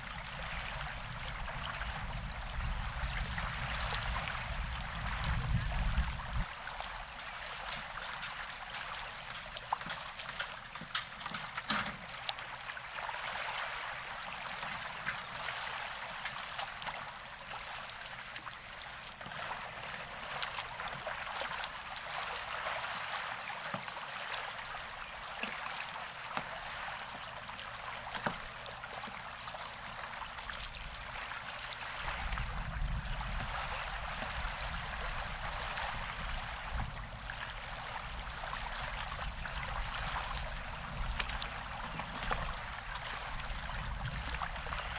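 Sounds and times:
wind rumble on microphone: 0:00.0 - 0:11.9, 0:30.5 - 0:44.9
small waves lapping: 0:00.0 - 0:44.9.

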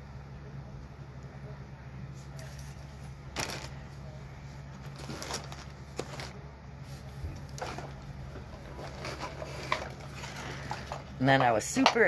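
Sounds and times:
steady low hum: 0:00.0 - 0:12.0
packaging rustling: 0:02.4 - 0:03.9, 0:04.7 - 0:06.4, 0:07.4 - 0:11.2.

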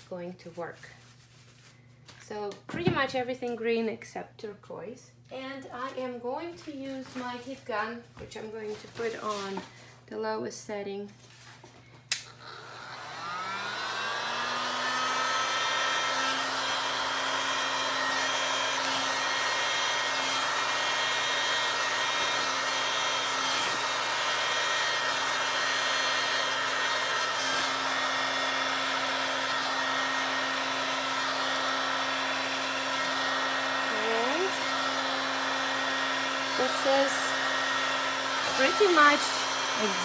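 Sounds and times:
heat gun fan whine: 0:11.7 - 0:40.0
heat gun switch clicking: 0:12.1 - 0:12.4.

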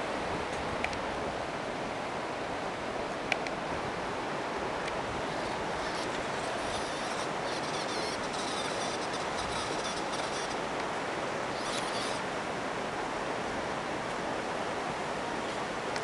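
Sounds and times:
steady hiss: 0:04.0 - 0:13.2
toy car motor and gears whirring: 0:05.4 - 0:10.6, 0:11.5 - 0:12.2.

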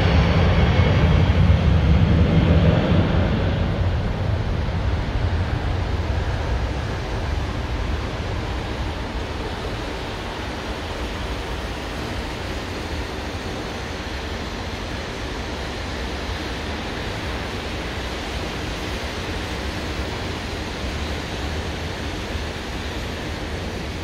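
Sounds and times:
jet engine roar: 0:00.0 - 0:24.0.

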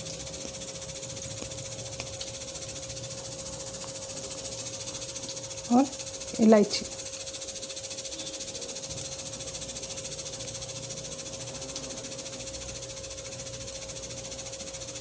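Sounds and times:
hot oil sizzling: 0:00.0 - 0:15.0
steady hum: 0:00.0 - 0:15.0.

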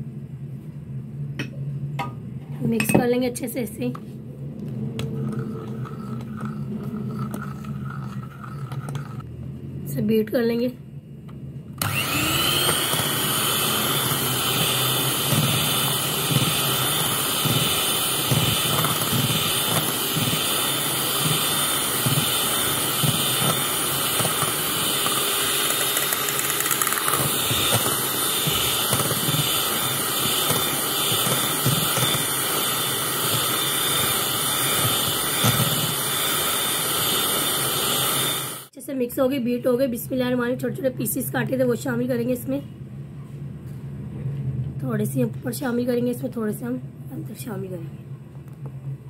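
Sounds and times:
electric hand mixer whining: 0:11.8 - 0:38.7.

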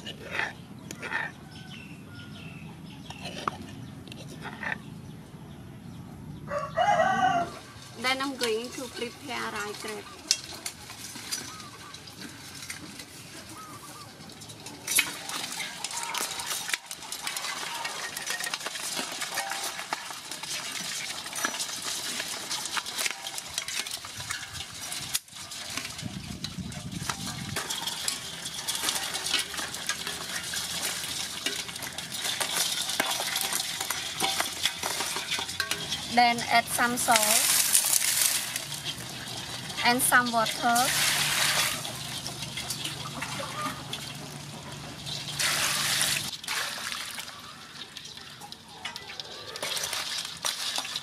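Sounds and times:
crabs scrabbling in metal basin: 0:00.0 - 0:05.2, 0:06.5 - 0:51.0
metal tongs clinking: 0:07.9 - 0:13.0, 0:13.6 - 0:46.4.

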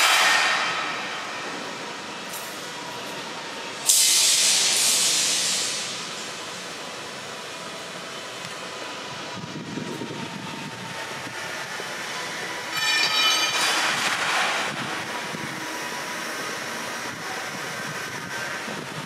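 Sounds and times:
station hall hum: 0:00.0 - 0:19.0
loud hiss: 0:03.8 - 0:06.4.

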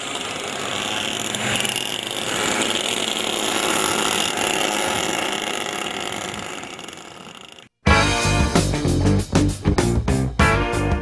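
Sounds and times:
karts buzzing past: 0:00.0 - 0:07.7.

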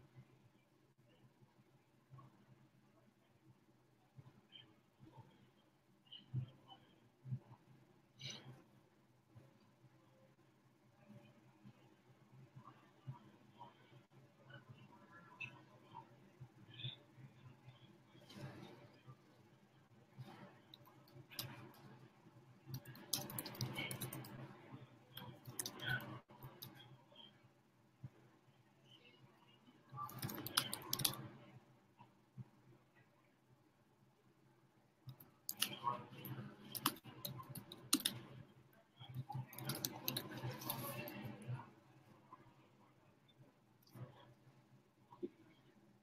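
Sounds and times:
mouse and keyboard clicks: 0:20.2 - 0:22.0, 0:22.7 - 0:24.5, 0:25.1 - 0:26.9, 0:30.0 - 0:31.3, 0:35.1 - 0:38.4, 0:39.0 - 0:41.6.

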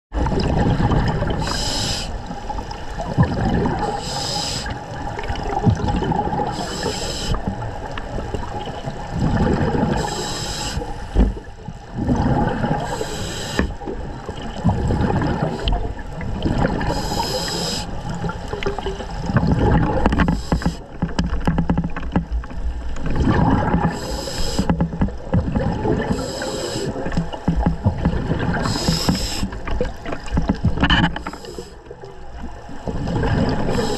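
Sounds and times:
exhaust bubbles gurgling: 0:00.1 - 0:21.6, 0:22.2 - 0:33.9
regulator breathing hiss: 0:01.4 - 0:02.2, 0:03.8 - 0:04.8, 0:06.5 - 0:07.4, 0:10.0 - 0:11.2, 0:12.8 - 0:13.8, 0:16.9 - 0:18.0, 0:20.3 - 0:20.9, 0:23.9 - 0:24.8, 0:26.1 - 0:27.1, 0:28.6 - 0:29.6, 0:31.2 - 0:31.9, 0:33.7 - 0:33.9.

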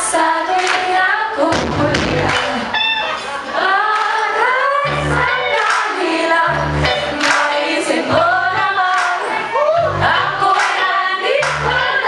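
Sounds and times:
woman singing: 0:00.0 - 0:02.7, 0:03.6 - 0:12.0
drums: 0:01.4 - 0:02.8, 0:06.5 - 0:12.0
electric bass: 0:01.5 - 0:03.0, 0:04.8 - 0:05.6, 0:06.4 - 0:07.3, 0:08.1 - 0:08.9, 0:09.6 - 0:10.5, 0:11.4 - 0:12.0.

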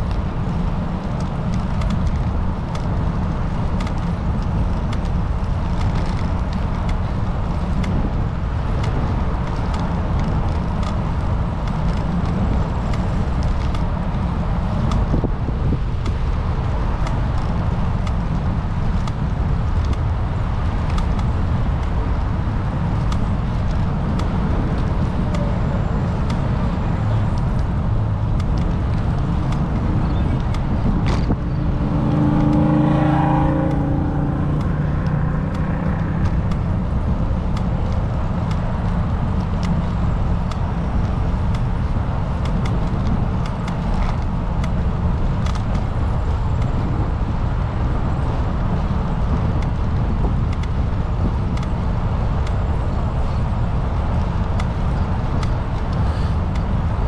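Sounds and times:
road and wind rumble: 0:00.0 - 0:57.0
vehicle engine passing: 0:26.8 - 0:38.2.

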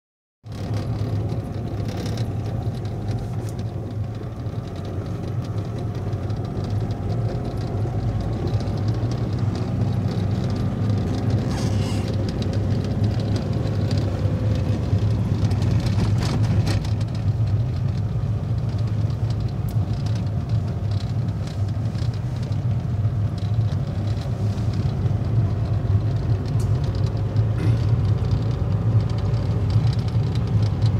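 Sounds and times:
car engine and tyre hum: 0:00.4 - 0:30.9
road clicks and knocks: 0:00.4 - 0:30.9.

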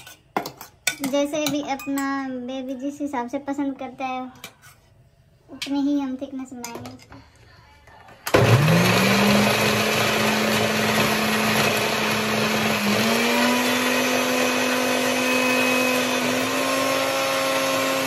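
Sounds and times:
mixer grinder motor running: 0:08.3 - 0:18.0.

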